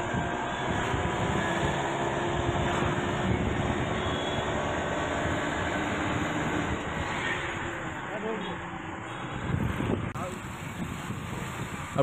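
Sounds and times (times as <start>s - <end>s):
wind buffeting microphone: 0.0s - 4.0s, 9.4s - 12.0s
vehicle engine and road noise: 0.0s - 12.0s.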